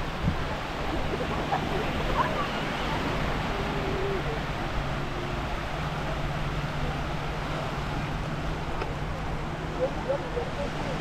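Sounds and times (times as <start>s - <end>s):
wind noise: 0.0s - 8.7s
faint distant voices: 0.0s - 11.0s
low engine hum: 0.0s - 11.0s
surf: 0.0s - 11.0s.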